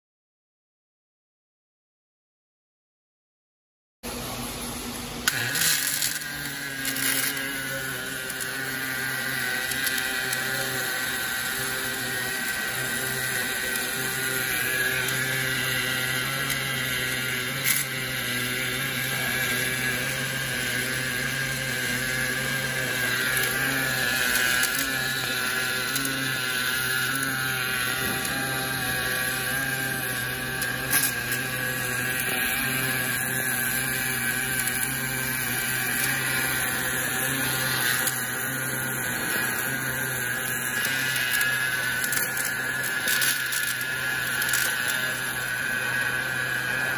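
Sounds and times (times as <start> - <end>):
machine hum: 4.1 - 46.9
welding arc hissing: 5.2 - 46.9.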